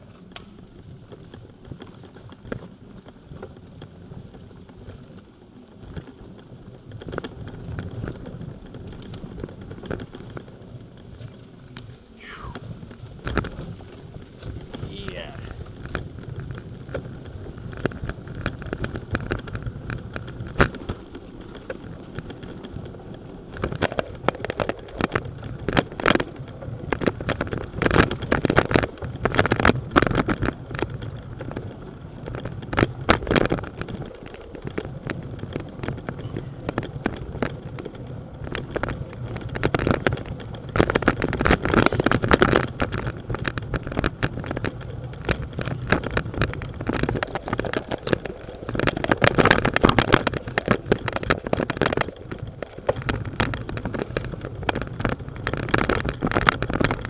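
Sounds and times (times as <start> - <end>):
bicycle rattling over wooden boards: 0.0 - 57.0.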